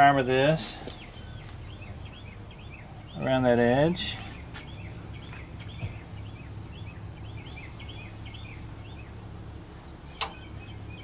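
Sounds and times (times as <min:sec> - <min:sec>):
steady low hum: 0:00.0 - 0:11.0
small bird chirping: 0:00.8 - 0:11.0
sharp click: 0:10.2 - 0:10.4.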